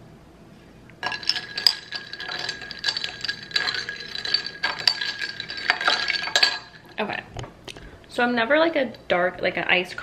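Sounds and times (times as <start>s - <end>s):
metal straw stirring ice in glass: 1.0s - 7.0s.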